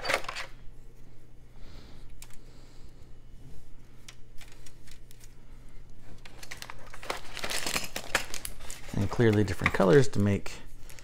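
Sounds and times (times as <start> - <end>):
plastic pieces clicking and rattling: 6.2 - 10.0.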